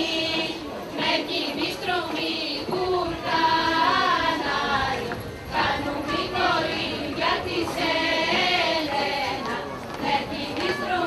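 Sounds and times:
women singing together: 0.0 - 11.0.

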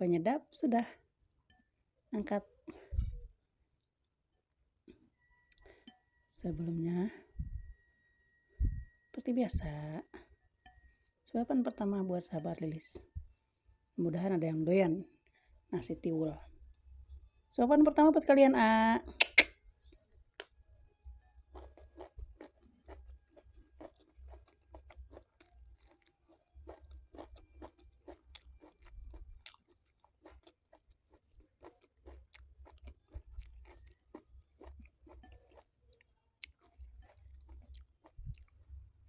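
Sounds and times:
wet mouth chewing sounds: 19.2 - 19.5, 21.6 - 38.8.

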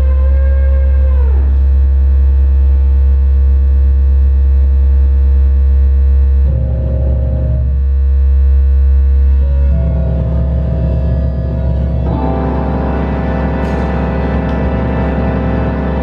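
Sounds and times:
sliding theremin-like tone: 0.0 - 1.9, 9.3 - 16.0
low electronic drone: 0.0 - 16.0.

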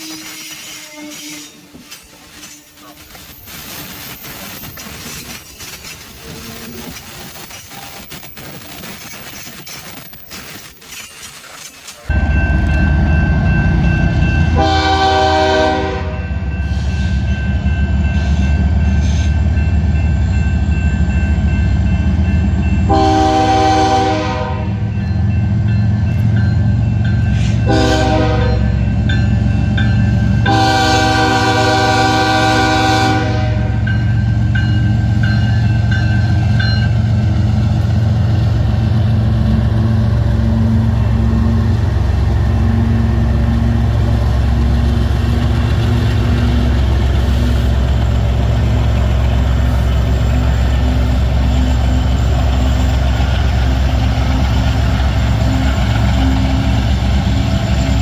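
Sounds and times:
train air horn blasts: 0.0 - 1.7, 14.4 - 17.3, 22.8 - 24.9, 27.4 - 28.8, 30.4 - 34.0
diesel locomotive engine rumbling: 0.0 - 58.0.

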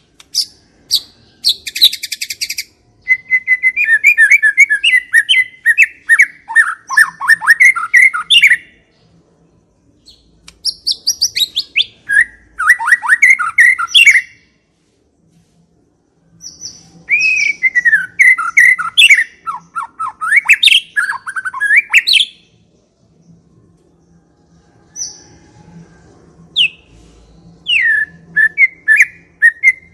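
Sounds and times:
bird singing whistles: 0.4 - 8.8, 10.1 - 14.4, 16.4 - 22.4, 26.6 - 26.9, 27.5 - 29.9.

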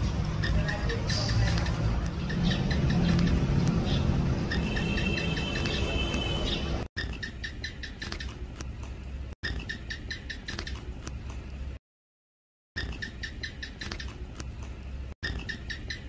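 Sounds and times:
gecko chirping: 0.0 - 8.5, 9.4 - 11.0, 12.8 - 14.3, 15.2 - 16.0.

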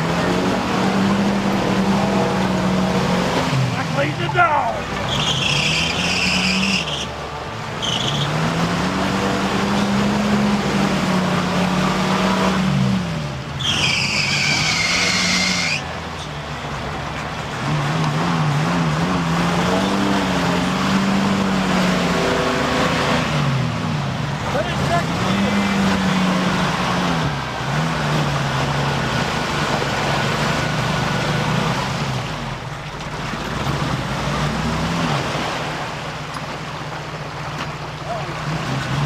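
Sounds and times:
car engine revving: 0.0 - 36.1
tyres churning through mud: 0.0 - 39.0
high squeal: 5.0 - 7.2, 7.8 - 8.4, 13.6 - 15.9.

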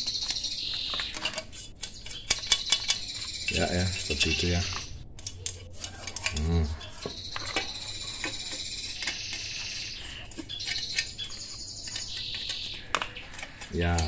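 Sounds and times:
insects chirring: 0.0 - 5.0, 6.2 - 13.8
low voice: 6.4 - 6.8.

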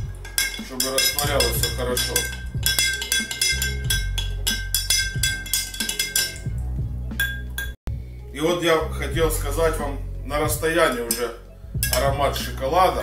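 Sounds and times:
metal spoon clinking in glass jar: 0.0 - 6.5, 7.2 - 7.8, 10.9 - 12.6.

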